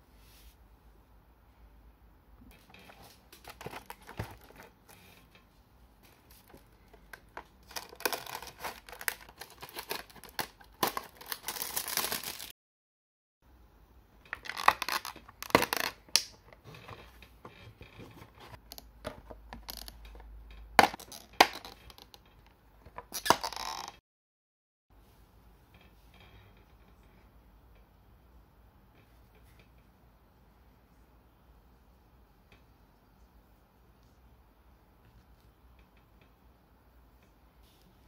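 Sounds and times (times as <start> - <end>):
cardboard and plastic rustling: 2.6 - 5.1, 6.0 - 12.5.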